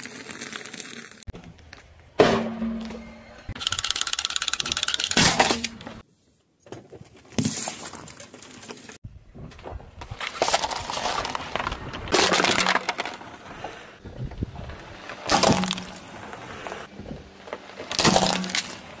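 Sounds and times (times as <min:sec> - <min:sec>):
car tyre crushing plastic: 0:10.2 - 0:13.5, 0:15.1 - 0:16.1, 0:17.6 - 0:19.0.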